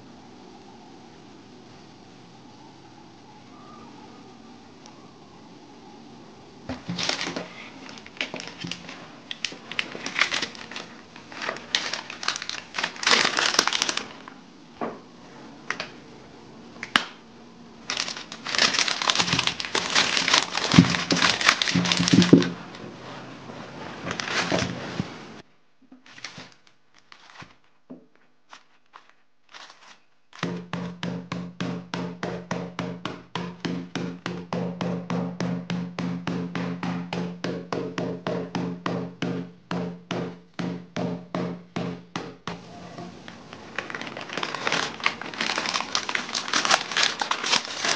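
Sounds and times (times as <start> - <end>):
plastic bag crinkling: 6.7 - 14.4, 17.8 - 22.8, 24.0 - 25.0, 26.0 - 27.8, 28.5 - 30.4, 43.1 - 47.9.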